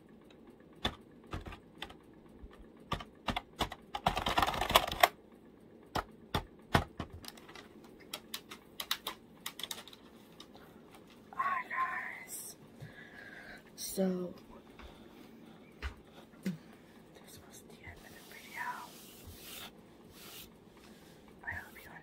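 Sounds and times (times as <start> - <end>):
keyboard typing clicks: 6.0 - 10.0.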